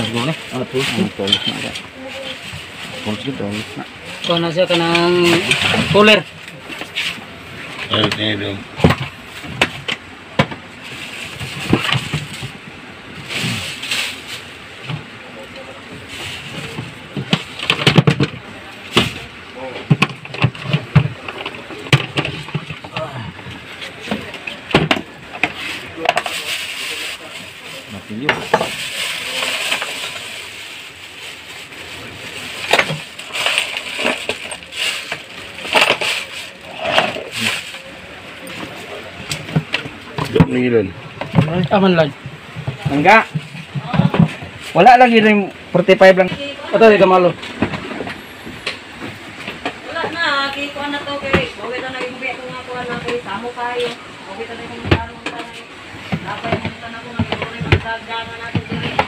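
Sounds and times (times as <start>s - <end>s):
plastic bags rustling: 0.0s - 59.0s
plastic knocking and clattering: 7.8s - 10.7s, 11.3s - 12.6s, 16.6s - 26.4s, 32.6s - 36.4s, 39.2s - 44.6s, 54.8s - 59.0s.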